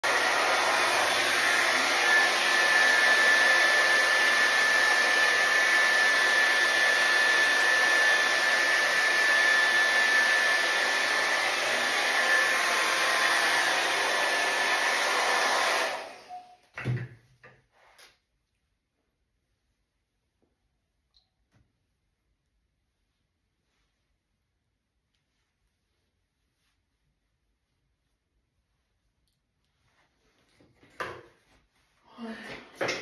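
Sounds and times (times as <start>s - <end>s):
hot-air brush rushing air: 0.0s - 16.4s.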